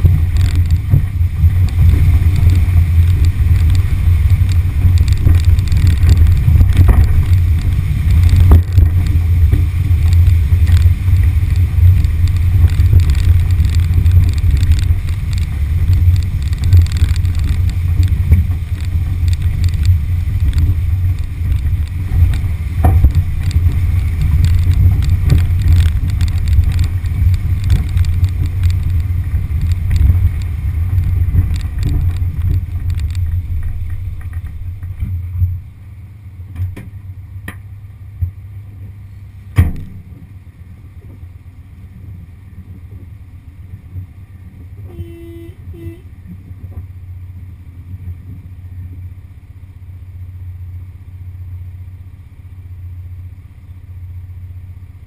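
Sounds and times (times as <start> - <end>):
wind on microphone: 0.0 - 35.6
car jolting over ruts: 0.0 - 35.7, 38.1 - 40.4
car engine rumble: 0.0 - 55.0.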